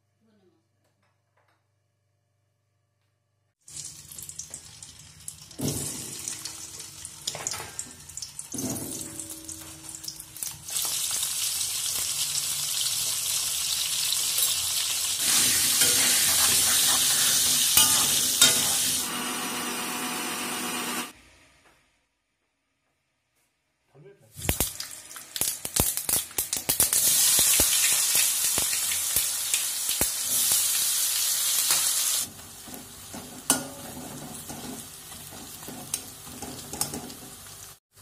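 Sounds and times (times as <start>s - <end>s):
potatoes sizzling in oil: 9.8s - 19.4s, 24.4s - 38.0s
kitchen utensils clanking: 15.3s - 19.0s.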